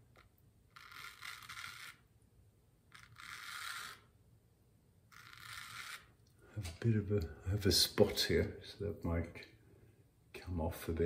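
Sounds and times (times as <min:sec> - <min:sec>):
razor scraping stubble: 0:00.7 - 0:02.0.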